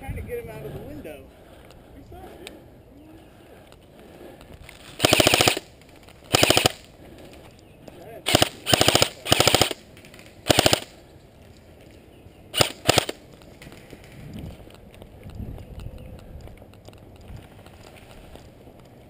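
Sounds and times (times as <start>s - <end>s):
airsoft rifle firing bursts: 5.0s - 5.7s, 6.3s - 6.9s, 8.3s - 11.0s, 12.5s - 13.2s.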